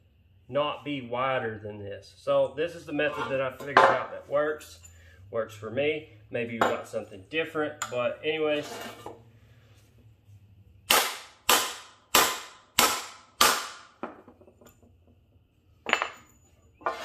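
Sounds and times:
hammer striking metal: 0:10.9 - 0:13.9.

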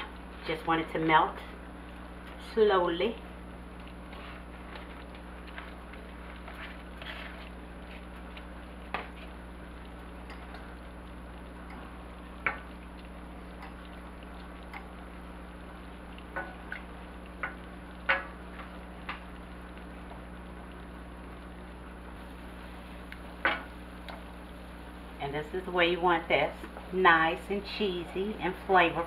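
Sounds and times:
steady low hum: 0:00.0 - 0:29.0
wooden spoon stirring in saucepan: 0:01.6 - 0:20.4.

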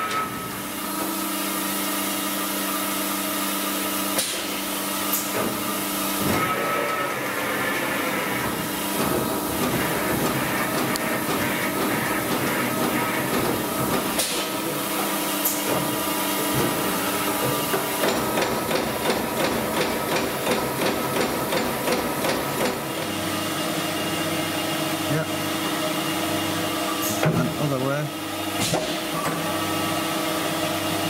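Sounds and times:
machine hum: 0:04.6 - 0:28.6.

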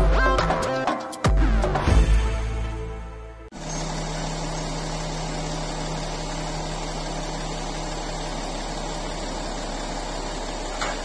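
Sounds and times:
diesel engine running: 0:03.5 - 0:11.0.

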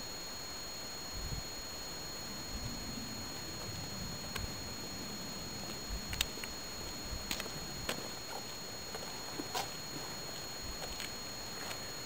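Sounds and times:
faint high-pitched whine: 0:00.0 - 0:12.0
footsteps on gravel: 0:07.2 - 0:11.9.

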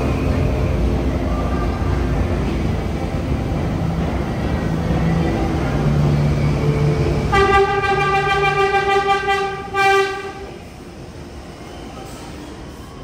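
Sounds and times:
subway train rumbling: 0:00.0 - 0:13.0
train horn blast: 0:07.3 - 0:10.6.

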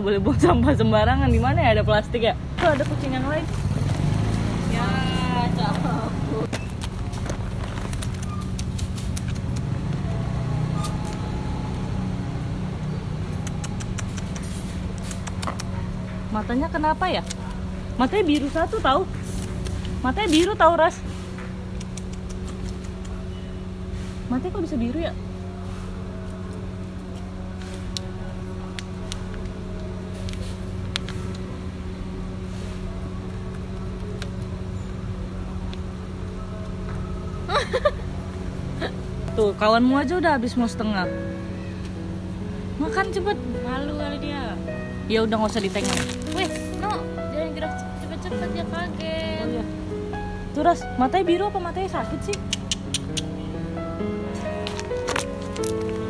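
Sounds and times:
engine hum: 0:00.0 - 0:56.0
plastic sachet crinkling: 0:45.6 - 0:46.9, 0:54.6 - 0:56.0.

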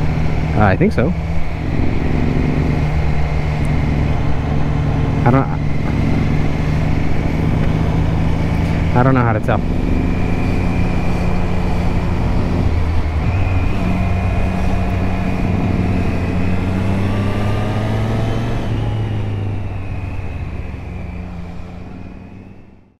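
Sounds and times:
wind noise: 0:00.0 - 0:22.5
motorcycle engine running: 0:00.0 - 0:22.8.

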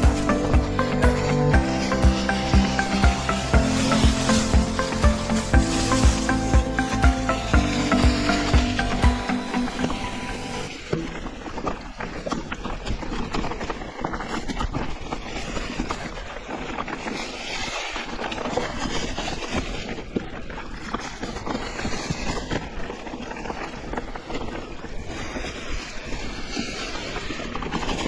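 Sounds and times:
bike tyres knocking and rattling: 0:10.7 - 0:28.0.

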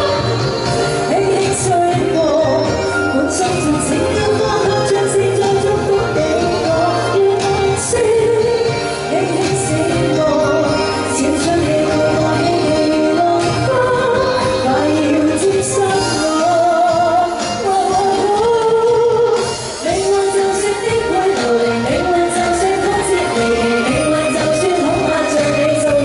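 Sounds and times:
musical accompaniment: 0:00.0 - 0:26.0
woman singing into microphone: 0:00.0 - 0:26.0.

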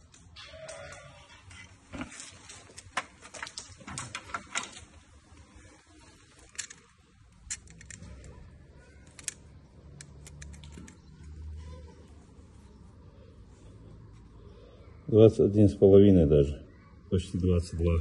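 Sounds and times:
measuring tools clicking and rattling: 0:06.4 - 0:11.3.

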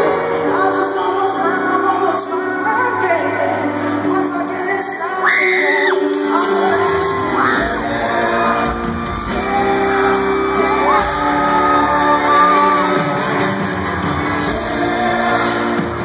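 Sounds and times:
live band with singer: 0:00.0 - 0:16.0
crowd shouts: 0:06.8 - 0:16.0.

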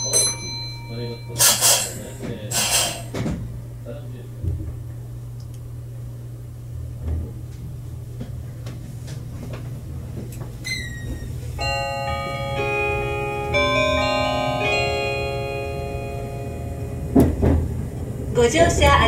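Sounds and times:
announcement chime melody: 0:00.0 - 0:02.6, 0:11.6 - 0:17.2
train interior rumble: 0:00.0 - 0:19.0.

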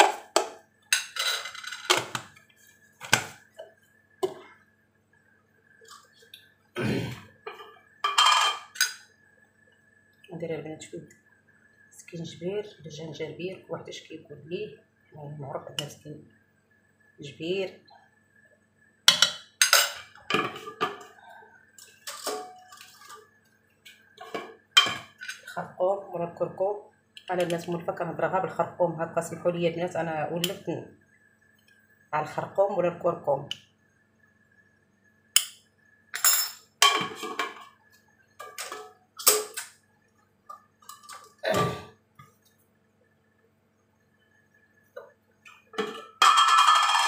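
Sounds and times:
dishes and utensils clinking: 0:00.0 - 0:02.2, 0:07.5 - 0:09.1, 0:19.1 - 0:21.2, 0:21.8 - 0:23.3, 0:24.2 - 0:25.6, 0:36.2 - 0:37.8, 0:38.4 - 0:39.7, 0:45.7 - 0:47.0
jars clinking on stone counter: 0:07.5 - 0:09.0, 0:24.2 - 0:25.6, 0:45.7 - 0:47.0.

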